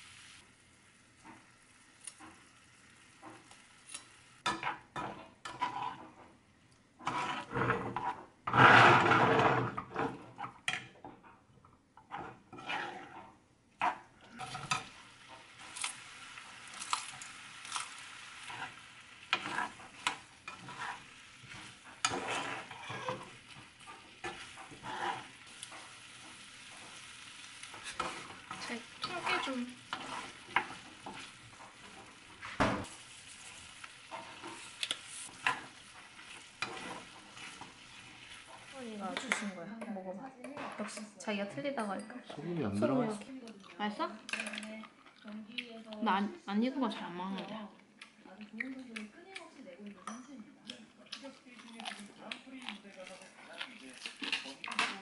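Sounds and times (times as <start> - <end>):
spatula scraping in frying pan: 0.0 - 6.4, 7.0 - 11.4, 12.0 - 39.4
pan sizzling: 0.0 - 11.4, 12.0 - 39.6.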